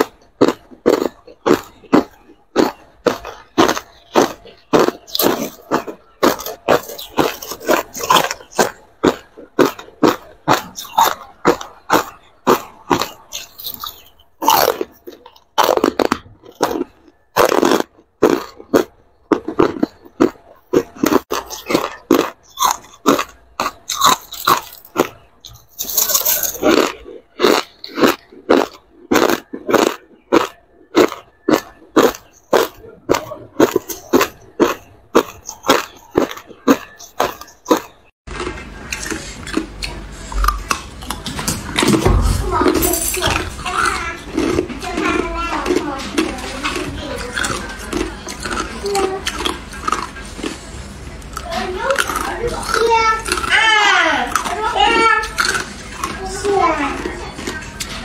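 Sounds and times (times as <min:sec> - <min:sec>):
ice being chewed: 0:00.0 - 0:58.0.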